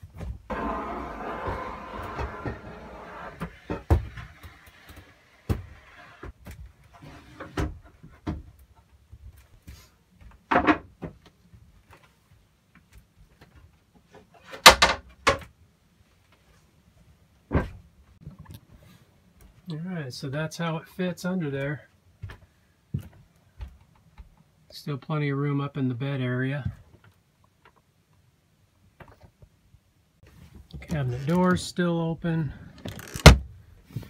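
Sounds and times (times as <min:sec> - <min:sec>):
wood rustling scrape: 0:00.5 - 0:07.6.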